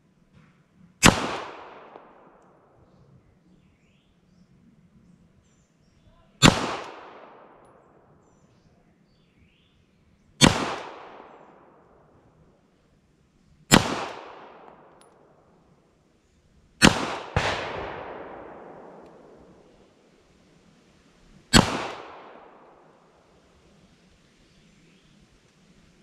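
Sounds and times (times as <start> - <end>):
pistol shots with echo: 1.0 - 2.7, 6.4 - 7.9, 10.4 - 11.9, 13.7 - 15.4, 16.8 - 20.0, 21.5 - 23.2.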